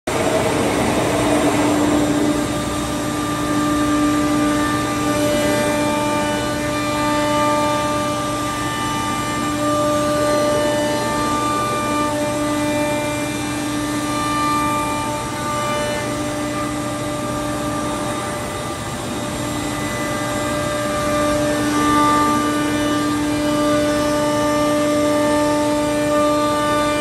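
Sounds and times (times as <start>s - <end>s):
steady rushing noise: 0.1s - 3.4s
router spindle whine: 0.1s - 27.0s.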